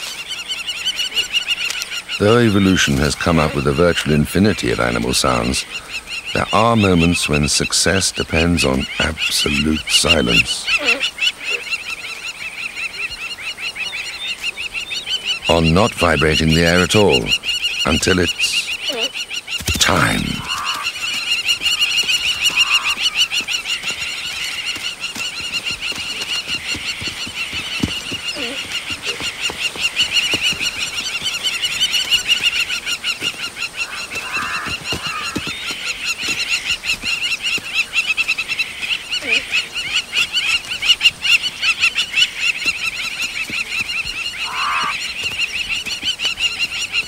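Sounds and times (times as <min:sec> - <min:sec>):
short lower bird calls: 0:00.0 - 0:47.0
bird shrill alarm calls: 0:04.6 - 0:37.8, 0:43.9 - 0:45.2.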